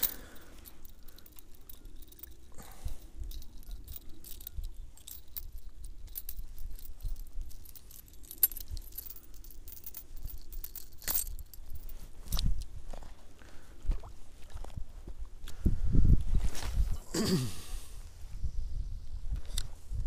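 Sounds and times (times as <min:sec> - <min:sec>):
fishing lure clicking and jingling: 0:00.0 - 0:12.0.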